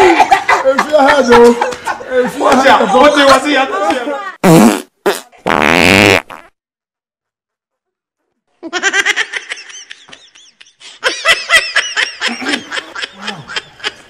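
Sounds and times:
person laughing: 8.6 - 14.0.

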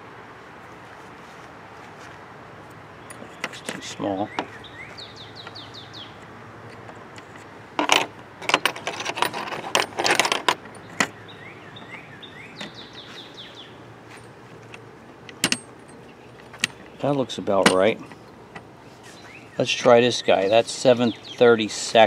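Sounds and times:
drill bits clinking and rattling: 6.7 - 11.1.

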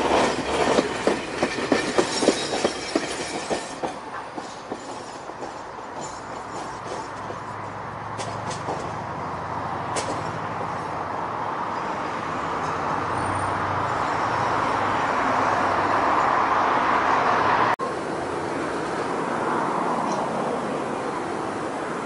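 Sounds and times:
steady street noise: 0.0 - 22.0
cars passing close: 5.2 - 22.0.

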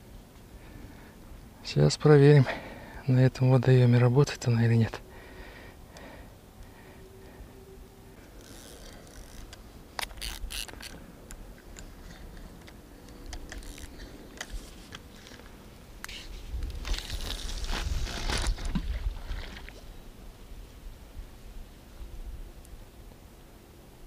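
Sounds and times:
rustling: 8.2 - 19.9
fishing tackle clicks and scrapes: 8.4 - 18.7.

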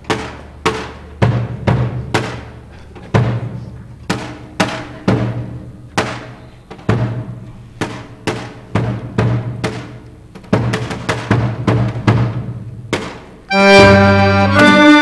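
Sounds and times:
bass drum beaten with mallet: 0.1 - 2.5.

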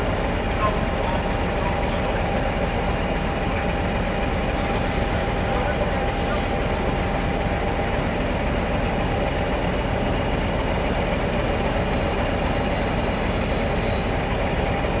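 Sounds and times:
diesel locomotive engines droning: 0.0 - 15.0
thin high squeal: 10.9 - 14.4.

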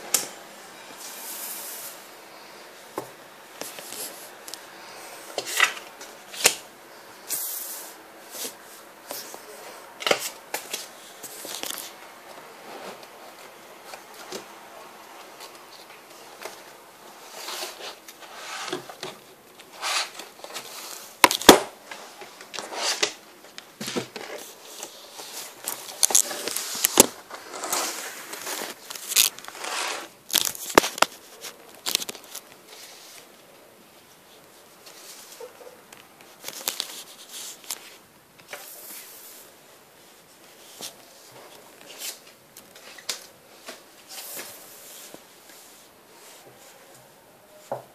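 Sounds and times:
plastic card sleeves crinkling: 24.4 - 32.9, 36.2 - 38.0.

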